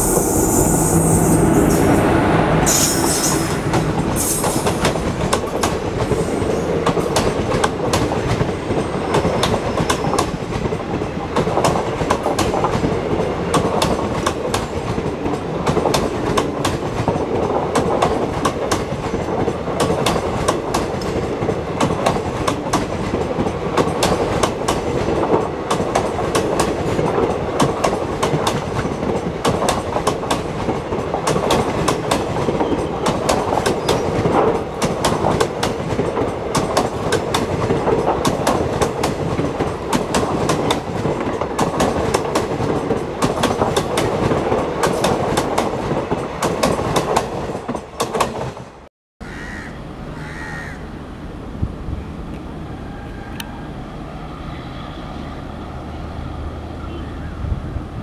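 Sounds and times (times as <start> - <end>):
distant locomotive hum: 0.0 - 47.0, 49.3 - 58.0
train wheels clickety-clack: 2.7 - 48.9.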